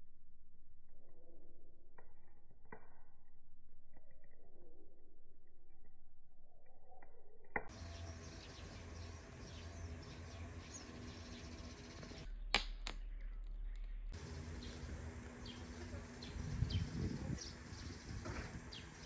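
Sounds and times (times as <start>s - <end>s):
faint outdoor background: 0.0s - 19.0s
songbirds chirping: 6.4s - 19.0s.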